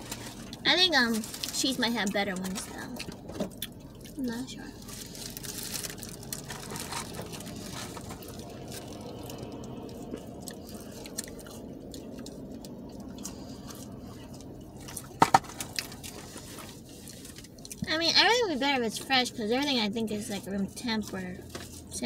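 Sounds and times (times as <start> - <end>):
wet chewing: 2.3 - 17.9.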